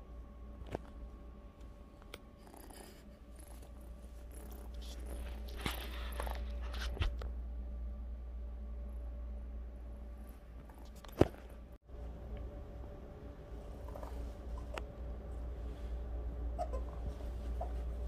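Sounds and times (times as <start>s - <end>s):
steady low hum: 0.0s - 18.0s
rustling and scuffing: 4.8s - 7.2s.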